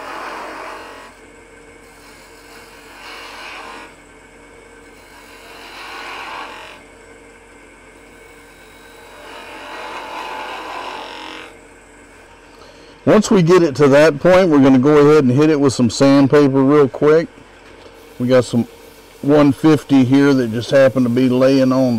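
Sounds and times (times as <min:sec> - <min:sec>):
turning tool cutting wood: 0:00.0 - 0:07.0, 0:07.9 - 0:11.8, 0:17.9 - 0:21.9
wood lathe humming: 0:00.0 - 0:13.2, 0:16.0 - 0:21.9.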